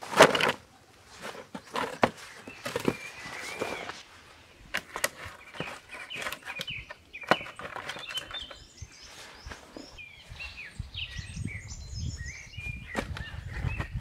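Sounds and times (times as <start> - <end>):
twigs crackling: 0.0 - 10.6
small birds chirping: 0.7 - 14.0.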